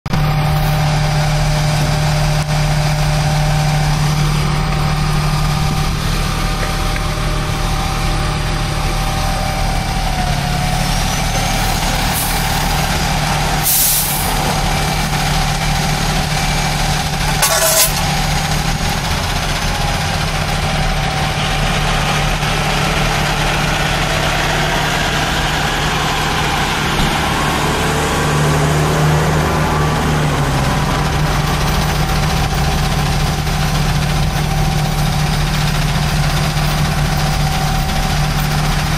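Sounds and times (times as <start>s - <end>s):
diesel engine idling: 0.1s - 38.9s
air brake hisses: 13.6s - 14.4s.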